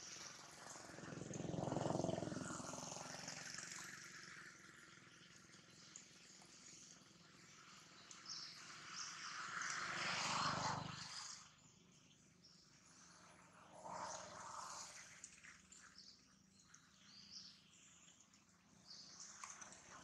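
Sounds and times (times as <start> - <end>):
faint outdoor ambience: 0.0 - 20.0
distant engine: 0.3 - 5.4.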